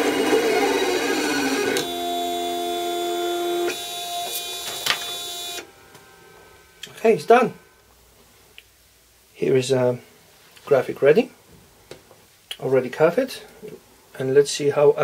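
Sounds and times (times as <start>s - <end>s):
cutting plotter motors whining: 0.0s - 6.1s.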